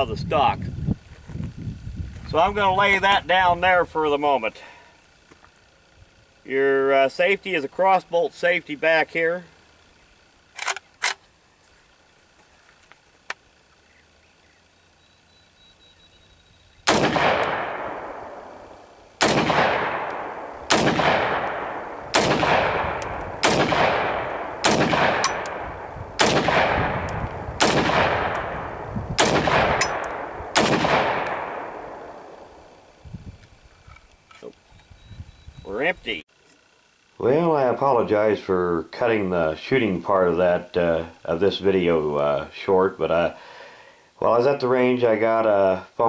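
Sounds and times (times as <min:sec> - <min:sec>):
rifle shots with echo: 0:16.8 - 0:32.9.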